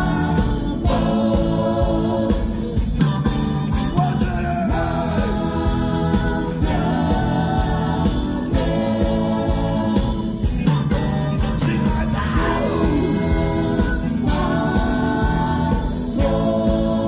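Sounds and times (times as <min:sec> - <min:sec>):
live band playing: 0:00.0 - 0:17.0
person singing: 0:10.5 - 0:17.0.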